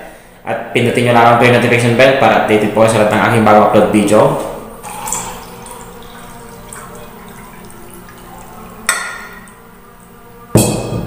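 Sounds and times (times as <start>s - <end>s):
man drinking and swallowing: 4.8s - 5.9s.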